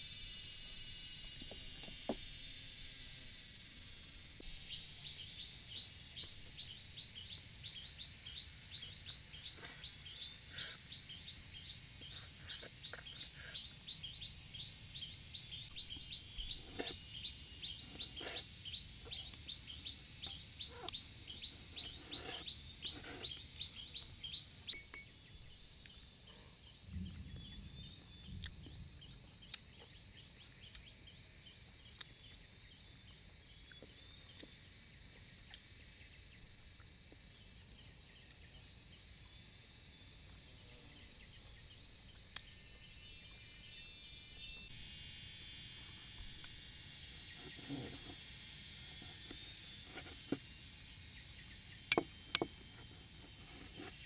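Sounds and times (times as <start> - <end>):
high insect drone: 0.0 - 54.0.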